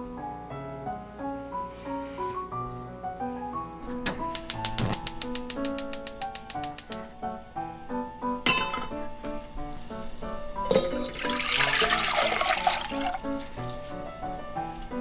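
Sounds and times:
background music: 0.0 - 15.0
pot knocking on a grate: 8.4 - 9.0
water pouring into a pot: 9.8 - 13.8.

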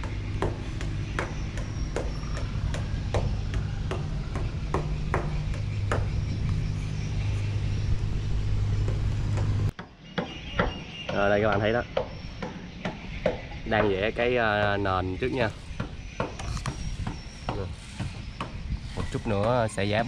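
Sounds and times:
sharp knocks: 0.0 - 6.3
engine humming: 0.0 - 9.8.

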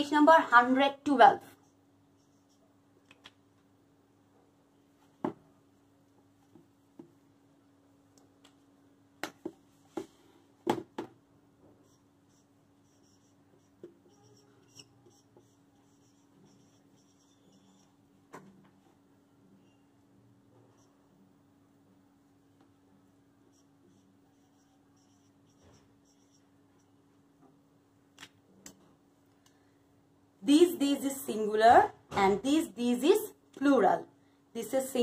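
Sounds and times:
marker scratching on whiteboard: 1.5 - 2.8, 11.6 - 18.2, 20.6 - 21.1, 23.4 - 27.0.

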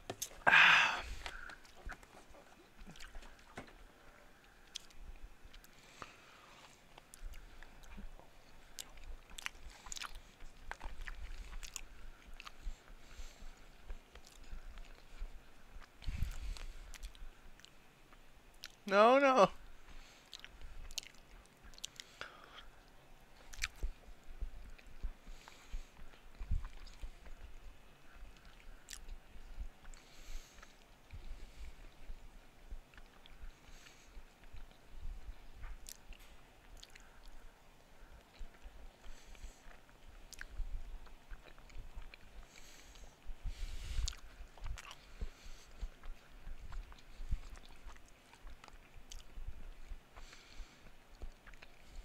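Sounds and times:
person chewing: 0.0 - 3.6, 4.3 - 18.8, 20.0 - 29.2, 32.9 - 34.8, 35.6 - 37.4, 38.2 - 52.0
mouth clicks: 0.1 - 2.0, 23.4 - 24.0, 35.6 - 37.4.

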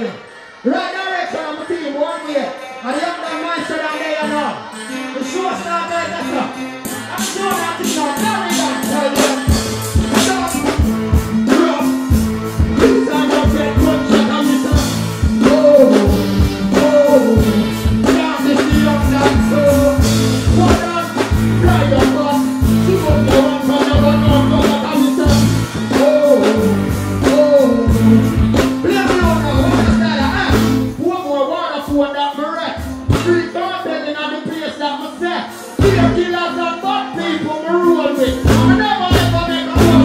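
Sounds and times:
live reggae band music: 0.0 - 40.0
man singing: 3.2 - 40.0
drum beat: 7.5 - 31.0, 35.8 - 36.2, 38.2 - 40.0
heavy bass: 7.6 - 31.2, 35.8 - 36.4, 38.2 - 40.0.

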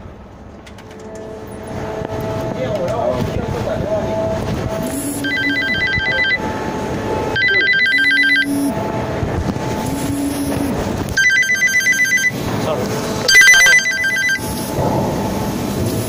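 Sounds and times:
phone ringtone trilling: 4.9 - 6.4, 7.4 - 8.8, 11.2 - 12.4, 13.3 - 14.5.

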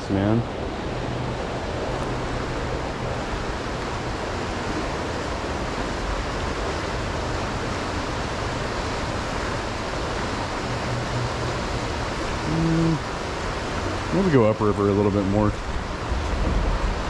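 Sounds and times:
river rushing over gravel: 0.0 - 17.0.

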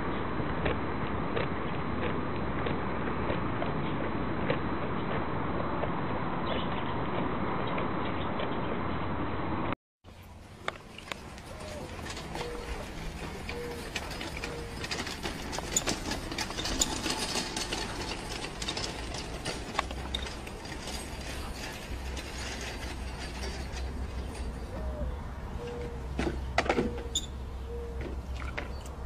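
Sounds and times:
wagon rattling over dirt: 10.1 - 25.0
short squeaks: 11.5 - 18.3, 25.6 - 28.0.

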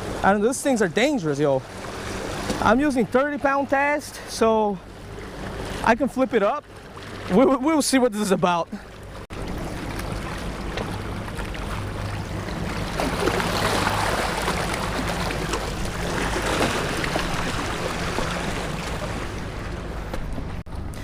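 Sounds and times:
waves splashing on rocks: 9.7 - 19.3.

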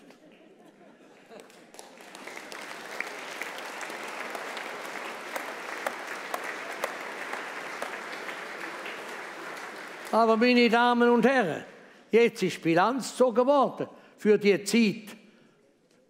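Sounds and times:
audience applauding: 1.4 - 11.2.

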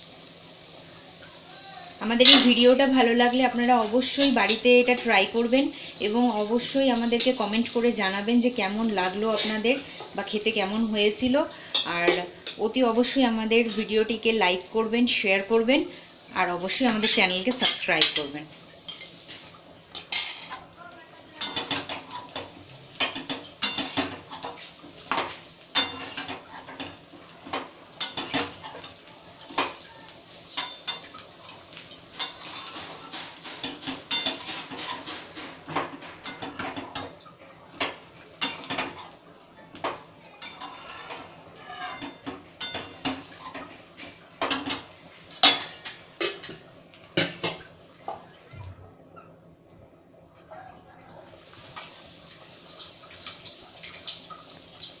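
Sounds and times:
metal spatula scraping a metal pan: 32.2 - 36.8, 40.4 - 43.6.

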